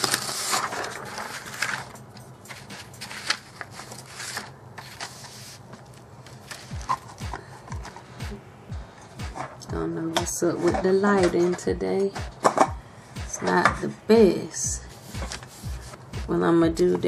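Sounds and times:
rustling: 0.0s - 7.4s.

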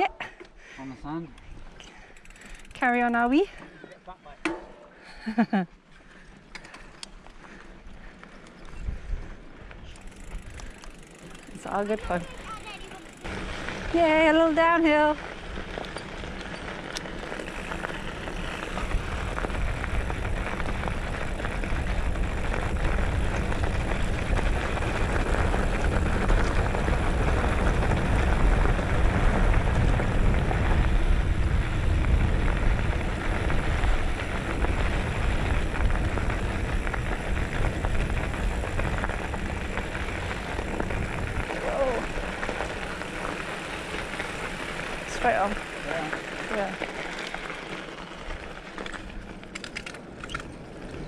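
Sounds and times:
bike tyres crunching on gravel: 6.1s - 51.0s
wind rumble on microphone: 13.3s - 44.7s.

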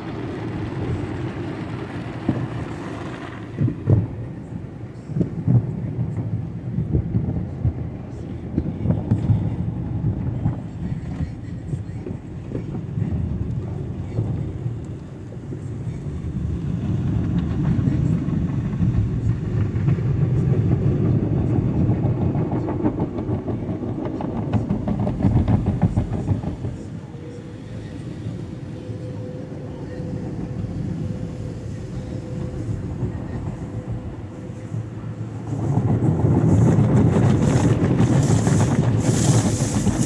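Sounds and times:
car wash brushes slapping: 36.5s - 40.0s.

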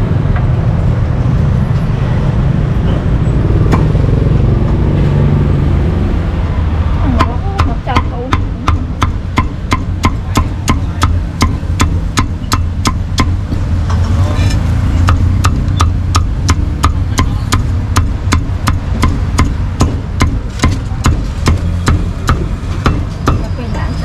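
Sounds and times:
cleaver chopping meat on wood: 3.7s - 3.9s, 7.2s - 13.7s, 15.0s - 23.4s.

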